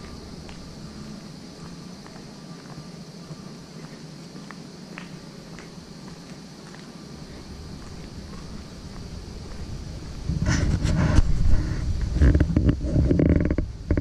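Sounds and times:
footsteps on paved path: 0.0 - 14.0
steady high hiss: 0.0 - 14.0
wind rumble on microphone: 7.3 - 14.0.

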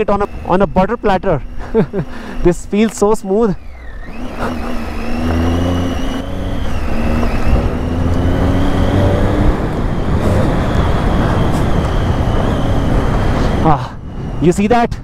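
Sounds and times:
motorcycle engine pulling: 0.0 - 13.8
wind rush: 4.2 - 15.0.

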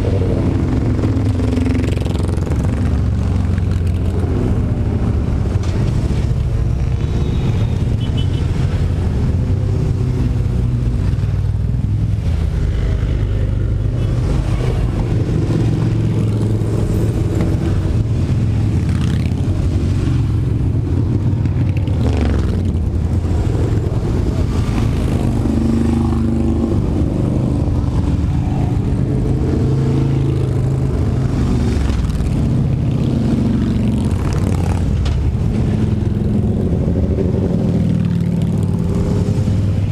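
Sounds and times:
motorcycle engines revving: 0.0 - 39.9
motorcycle engines rumbling: 0.0 - 39.9.

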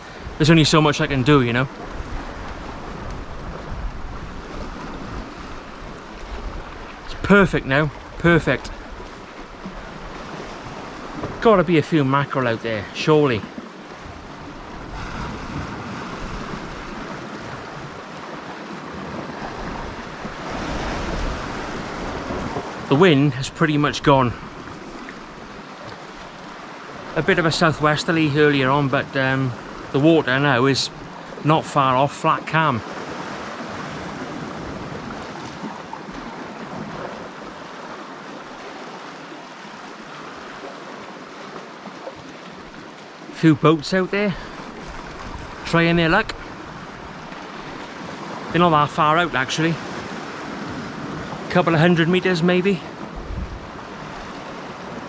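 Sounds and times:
wind rumble on microphone: 0.0 - 11.5, 13.4 - 23.0, 44.6 - 48.6, 53.0 - 55.0
sea washing against rocks: 0.0 - 55.0.

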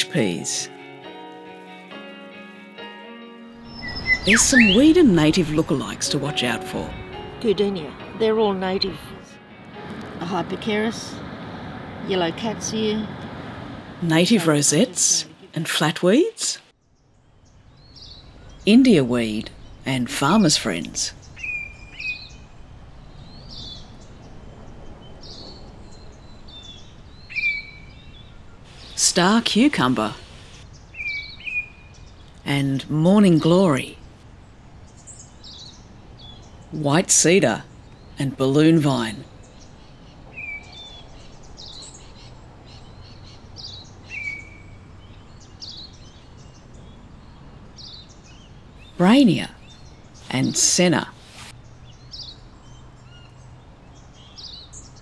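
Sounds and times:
steady outdoor hiss: 0.0 - 55.0
birds chirping: 2.4 - 55.0
whistled bird note: 3.6 - 5.1.

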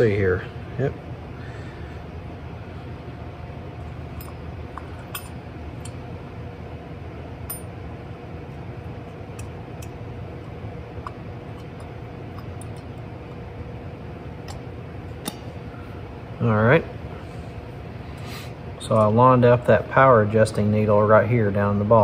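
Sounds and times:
steady low hum: 0.0 - 22.0
metal parts clicking and clinking: 4.2 - 6.0.

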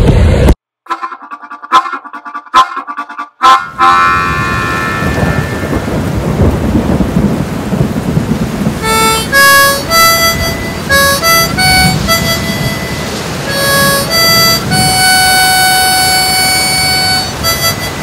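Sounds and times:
harmonica: 0.9 - 5.8, 8.8 - 18.0
rain: 4.1 - 18.0
rolling thunder: 4.3 - 13.0.

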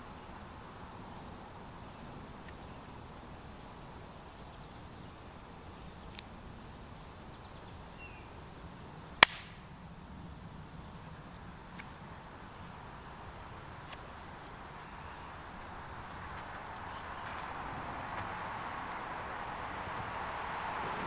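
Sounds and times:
faint outdoor background noise: 0.0 - 21.0
sharp loud click: 9.2 - 9.6.

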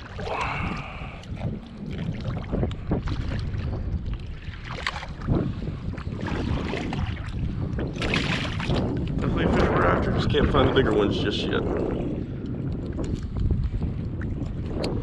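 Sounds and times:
low rumble of open water: 0.0 - 15.0
wind buffeting microphone: 0.0 - 15.0
sharp splash: 4.5 - 5.3, 8.0 - 8.9.

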